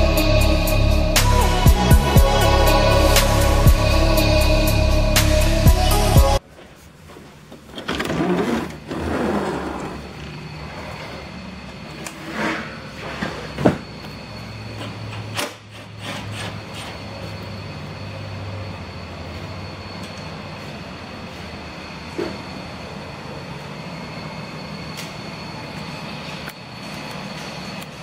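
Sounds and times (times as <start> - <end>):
steady low hum: 0.0 - 7.7.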